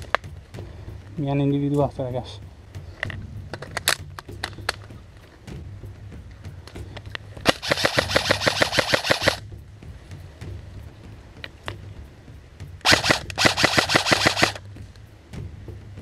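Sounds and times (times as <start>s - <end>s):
airsoft gun full-auto bursts: 7.5s - 9.4s, 12.9s - 14.6s.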